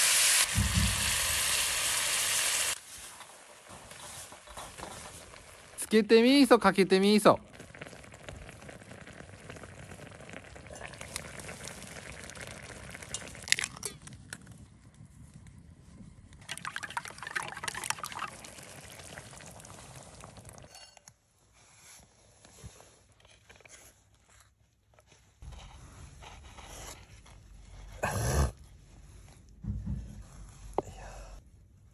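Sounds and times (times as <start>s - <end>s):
broth bubbling in a skillet: 0.0s - 21.1s.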